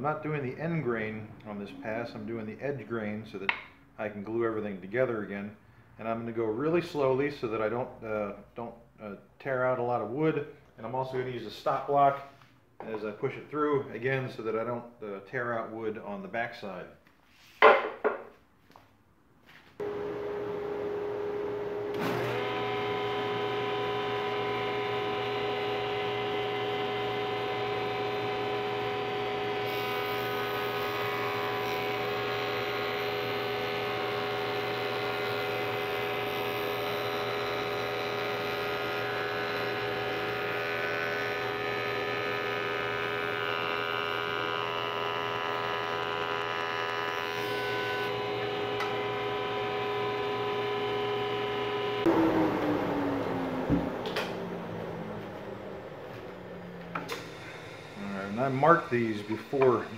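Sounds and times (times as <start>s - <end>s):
jointer motor hum: 19.8s - 59.9s
cutterhead planing wood: 21.9s - 53.1s, 56.1s - 59.9s.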